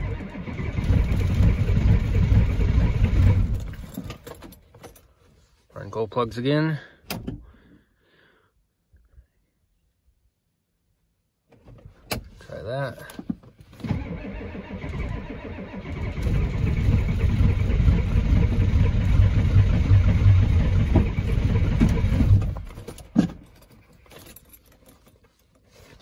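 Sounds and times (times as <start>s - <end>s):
diesel engine cranking: 0.0s - 4.6s, 13.8s - 25.0s.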